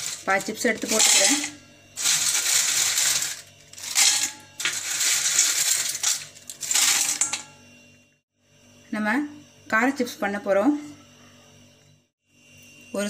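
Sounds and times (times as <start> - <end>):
chips rattling in a steel bowl: 0.0 - 7.5.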